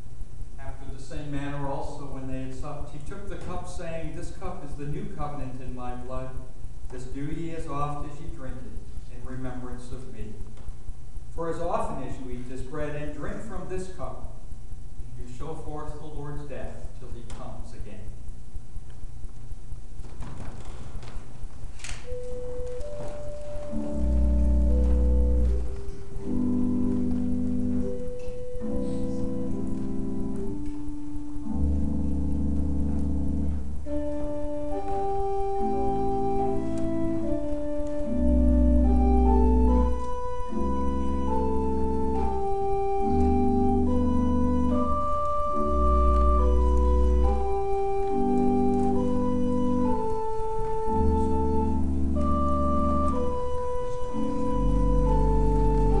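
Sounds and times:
church organ playing chords: 22.0s - 56.0s.

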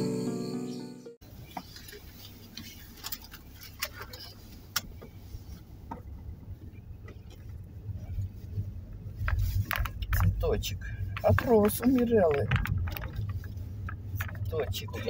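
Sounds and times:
car engine and road rumble: 1.2s - 15.0s
sharp clicks and ticks: 9.2s - 14.9s.

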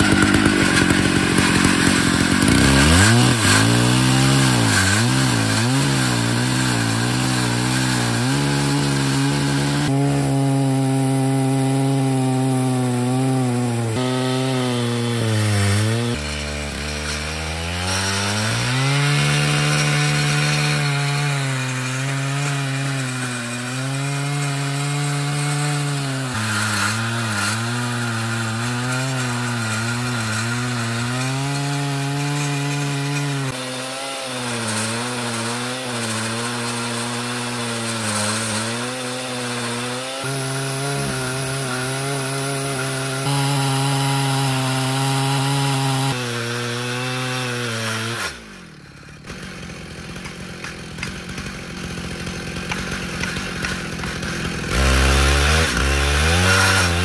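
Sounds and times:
chainsaw cutting wood: 0.0s - 57.0s.

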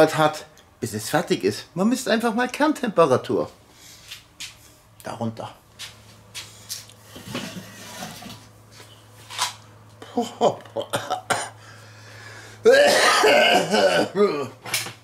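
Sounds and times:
person coughing and clearing throat: 10.1s - 11.6s, 12.7s - 14.6s.

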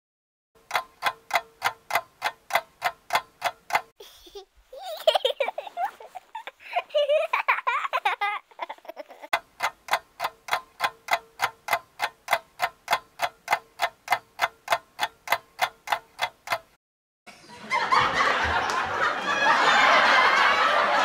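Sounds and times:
ticking clock sound effect: 0.6s - 3.9s, 9.3s - 16.8s
giggling laughter: 4.0s - 9.4s, 17.4s - 21.0s.

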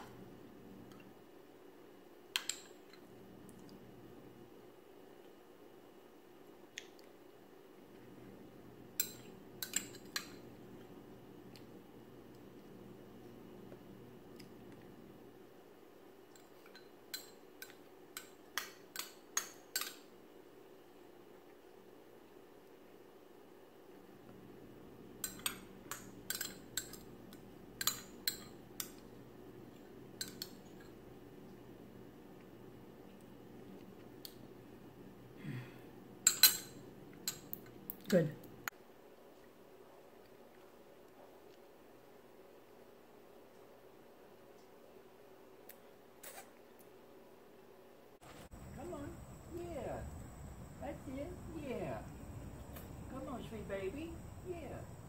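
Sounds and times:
metal spoon clinking on bowl: 25.2s - 27.0s, 27.8s - 29.0s, 36.2s - 37.6s.

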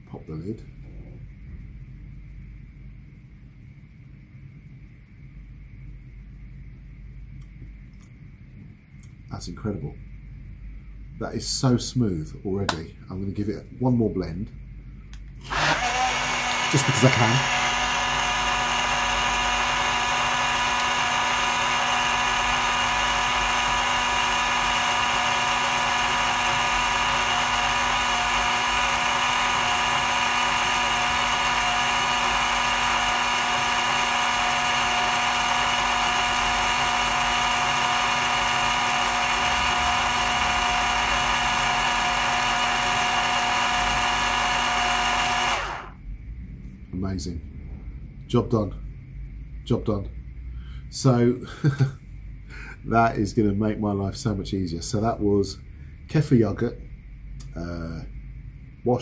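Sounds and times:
blender motor whine: 15.4s - 46.0s.

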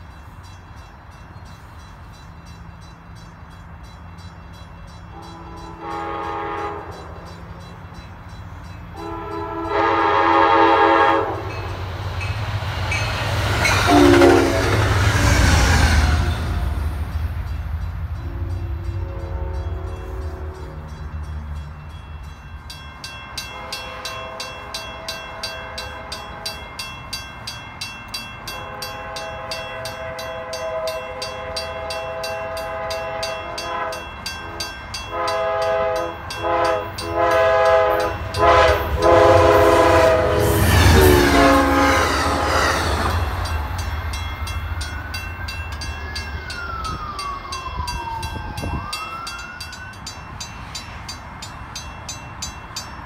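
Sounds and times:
crossing bell ringing: 0.0s - 53.0s
passing train: 0.0s - 53.0s
train air horn blasts: 5.1s - 7.3s, 9.0s - 11.7s, 13.7s - 16.8s, 18.2s - 20.9s, 28.6s - 43.4s.

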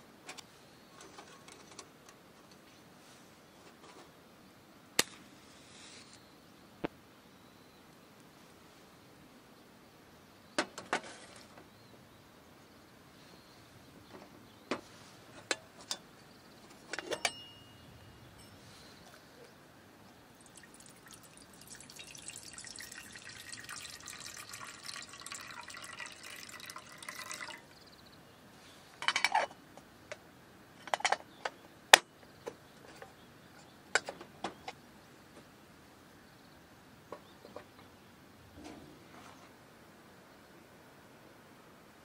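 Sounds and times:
metal kettle lid clanks: 16.9s - 17.6s
water pouring into metal kettle: 20.4s - 27.8s.

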